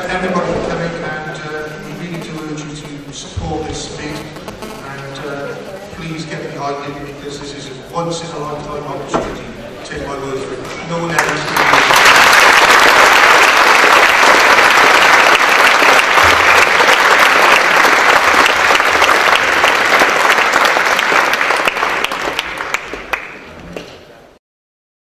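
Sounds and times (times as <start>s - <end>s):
audience applauding: 10.7s - 23.5s.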